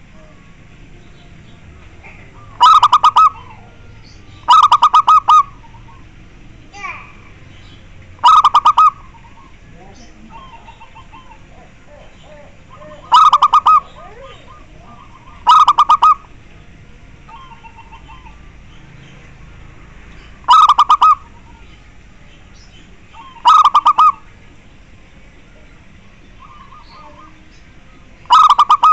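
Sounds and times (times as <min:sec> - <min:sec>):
dove cooing: 0:00.0 - 0:00.8, 0:01.5 - 0:07.3, 0:08.1 - 0:16.4, 0:17.2 - 0:19.2, 0:20.2 - 0:21.9, 0:23.0 - 0:24.4, 0:26.3 - 0:28.9.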